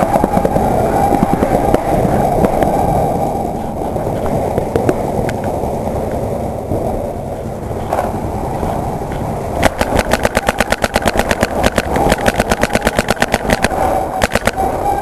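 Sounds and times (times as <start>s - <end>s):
steady rushing noise: 0.0s - 15.0s
paintball marker firing rapidly: 9.6s - 14.6s.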